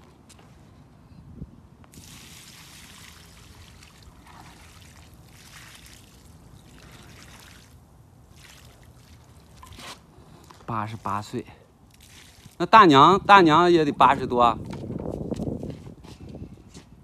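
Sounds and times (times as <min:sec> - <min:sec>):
water splashing and trickling: 0:01.9 - 0:13.5.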